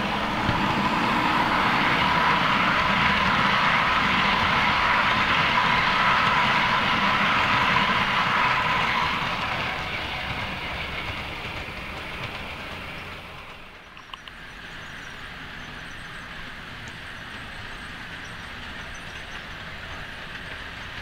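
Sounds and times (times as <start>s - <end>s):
small click: 14.0s - 14.4s.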